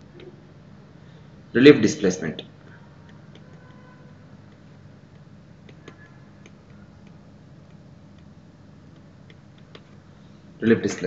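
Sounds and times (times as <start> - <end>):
faint low hum: 0.0 - 11.0
stylus tapping on pen tablet: 3.0 - 10.1.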